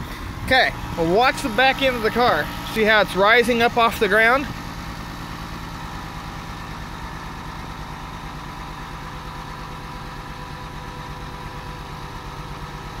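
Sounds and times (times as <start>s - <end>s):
air compressor running: 0.0s - 13.0s
car engine idling: 0.0s - 13.0s.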